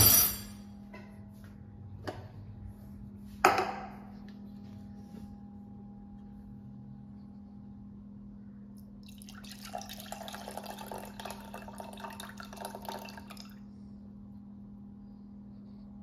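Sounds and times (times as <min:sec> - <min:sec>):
milk pouring into a glass: 0:09.0 - 0:13.7.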